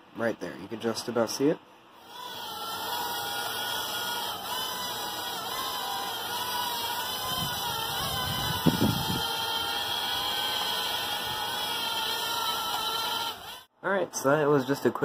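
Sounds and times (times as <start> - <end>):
drone propellers whining: 2.0 - 13.7.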